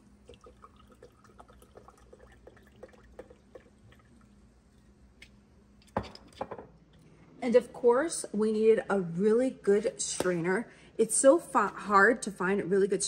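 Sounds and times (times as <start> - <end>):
liquid pouring into a cup: 0.0 - 7.0.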